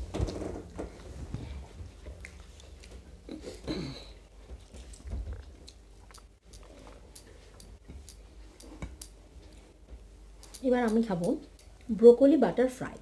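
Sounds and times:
chewing and mouth noises: 2.0s - 3.6s, 4.6s - 9.7s.

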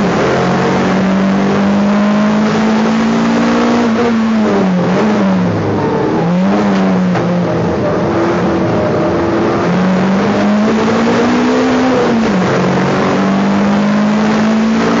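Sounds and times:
race car engine revving: 0.0s - 15.0s.

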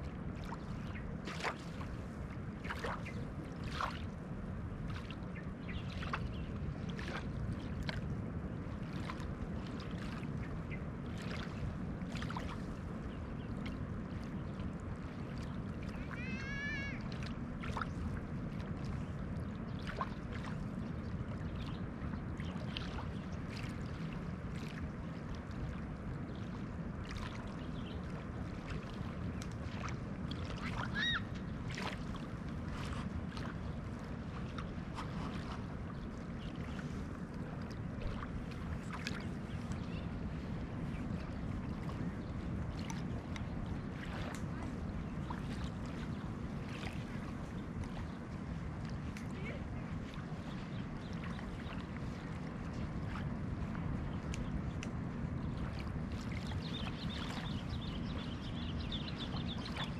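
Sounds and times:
small waves lapping at shore: 0.0s - 59.9s
bird calling: 30.8s - 31.3s.

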